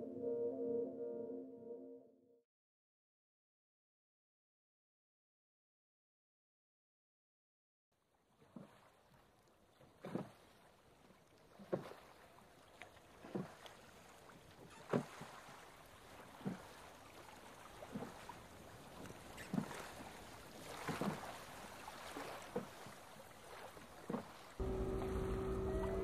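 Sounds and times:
oars knocking and splashing: 0:09.8 - 0:10.7, 0:11.5 - 0:26.0.

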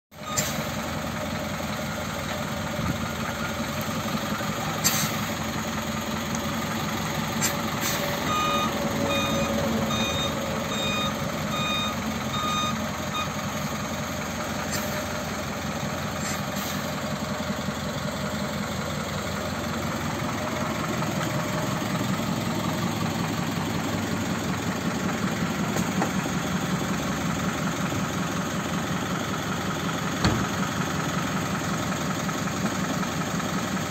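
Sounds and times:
diesel engine idling: 0:00.2 - 0:33.9
electronic beeps: 0:08.2 - 0:13.4.

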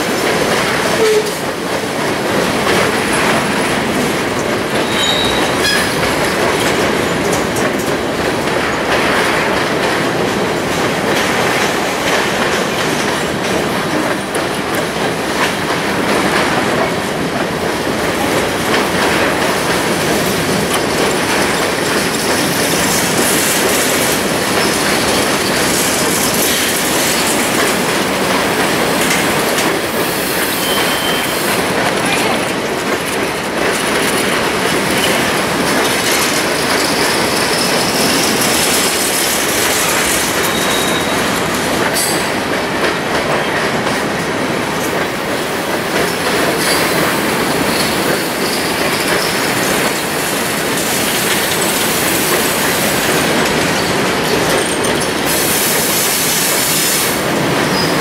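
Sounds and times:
train wheels rumbling on track: 0:00.0 - 0:58.0
high wheel squeals: 0:04.8 - 0:06.0, 0:30.3 - 0:31.5, 0:40.4 - 0:41.3.

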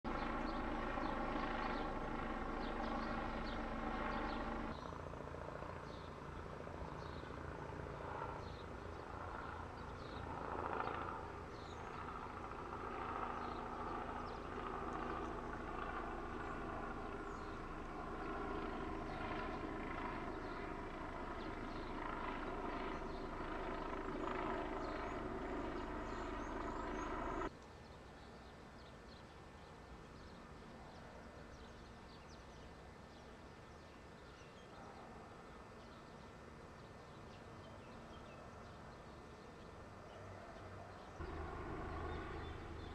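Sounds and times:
helicopter drone: 0:00.1 - 0:27.5, 0:38.1 - 0:42.9.

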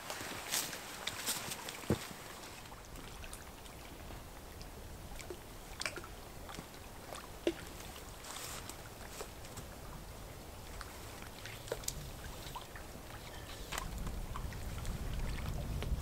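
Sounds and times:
rustles of person moving: 0:00.0 - 0:02.8, 0:07.7 - 0:09.7
water: 0:00.0 - 0:16.0
wind: 0:00.0 - 0:16.0.

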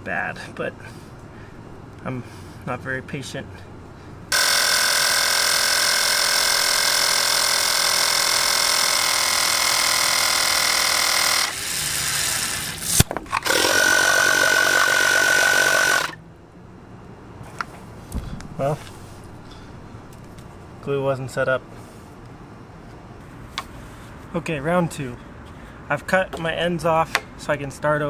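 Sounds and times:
electric air compressor running: 0:04.3 - 0:16.2.

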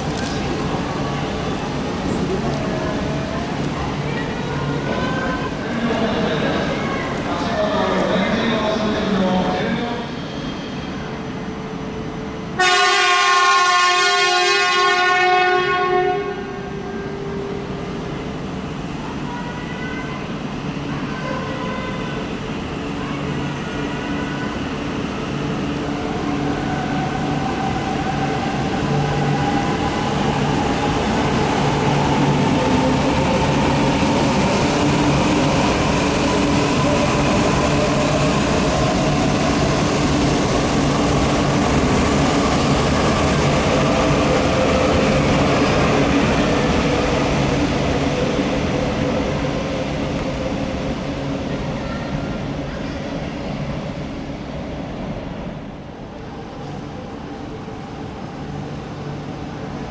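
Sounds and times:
train rumble: 0:00.0 - 0:10.0
train horn blast: 0:12.6 - 0:17.2.

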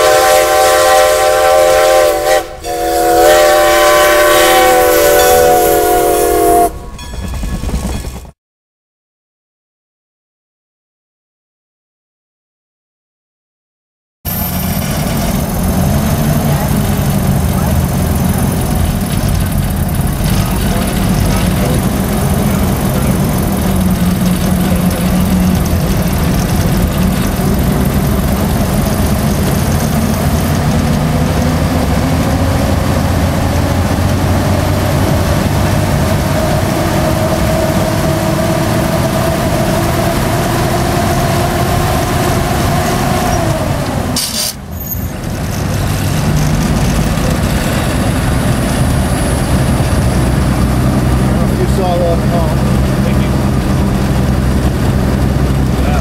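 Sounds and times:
rail motorcar engine running: 0:00.0 - 0:08.4, 0:14.3 - 0:56.0
rising whine: 0:14.3 - 0:44.2.

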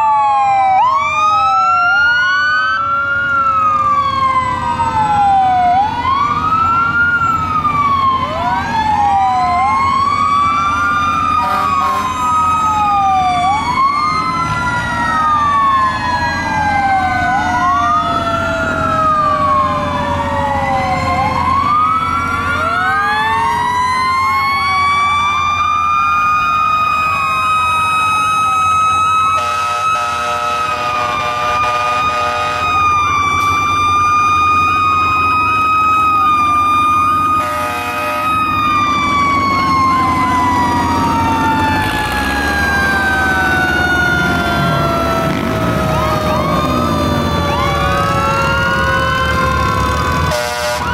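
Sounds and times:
fire truck sirens wailing: 0:00.0 - 0:50.9
low rumble of engines: 0:00.0 - 0:50.9
horn blaring: 0:11.3 - 0:12.4, 0:29.2 - 0:33.7, 0:37.2 - 0:50.9.

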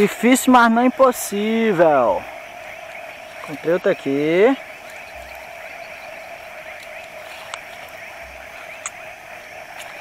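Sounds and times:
frogs calling: 0:00.0 - 0:10.0
faint clicks: 0:06.7 - 0:08.0, 0:08.7 - 0:09.0.

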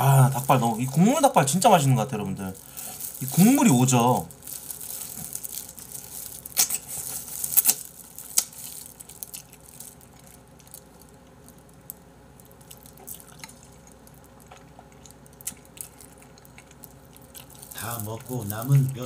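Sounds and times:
wet chewing: 0:02.6 - 0:11.9, 0:12.5 - 0:19.0.

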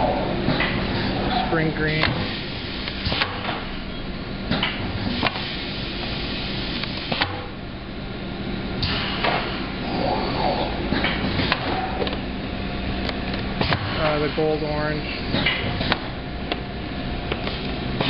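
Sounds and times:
printing press humming: 0:00.0 - 0:18.0.

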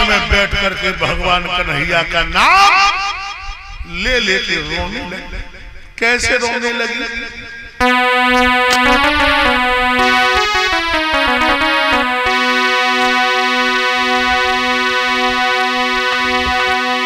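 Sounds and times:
electronic keyboard playing: 0:07.8 - 0:17.0.

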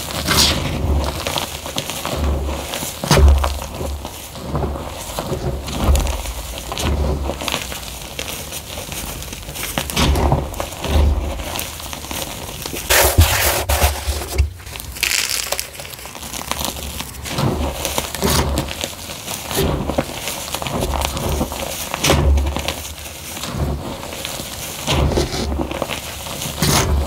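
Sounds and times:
chalk crushed by hand crackling: 0:00.0 - 0:27.0.

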